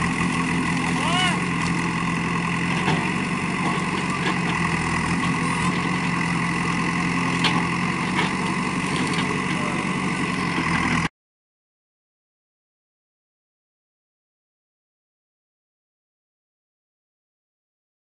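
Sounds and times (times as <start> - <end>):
diesel engine running: 0.0 - 11.1.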